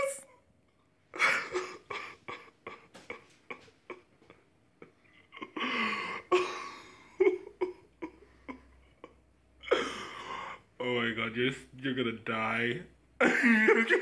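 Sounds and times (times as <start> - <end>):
person coughing: 1.2 - 4.1, 5.4 - 8.2, 9.6 - 10.5.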